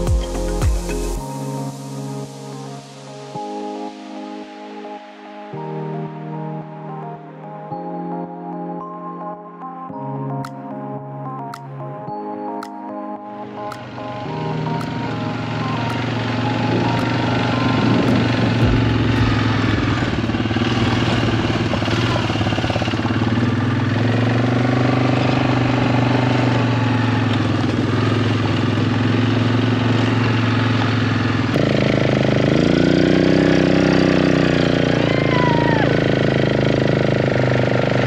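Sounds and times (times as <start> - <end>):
quad bike engine running: 13.7 - 38.0.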